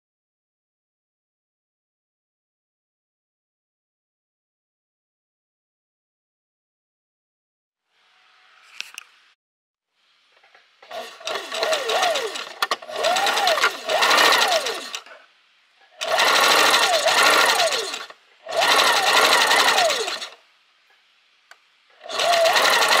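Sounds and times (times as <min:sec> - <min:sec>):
sewing machine stitching: 0:10.8 - 0:15.2, 0:16.0 - 0:20.4, 0:22.0 - 0:23.0.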